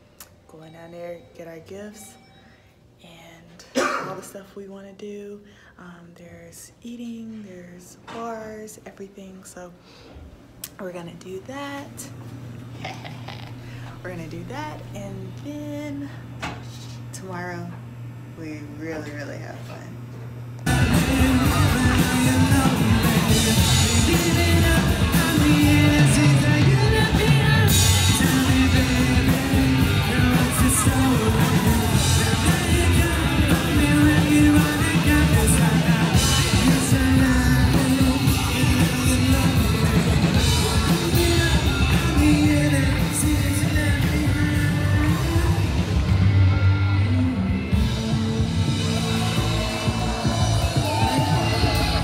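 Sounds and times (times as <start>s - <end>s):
drums: 20.6s - 52.0s
electric guitars: 20.6s - 52.0s
person singing: 20.7s - 52.0s.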